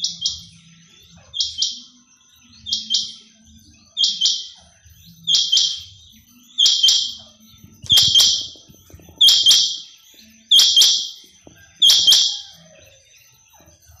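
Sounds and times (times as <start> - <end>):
quail calling: 11.7 - 12.7.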